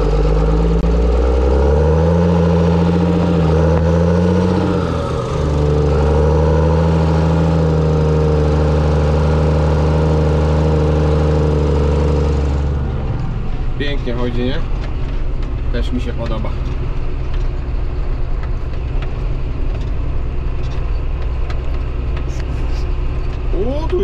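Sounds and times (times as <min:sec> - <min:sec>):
tractor diesel engine under load: 0:00.0 - 0:24.0.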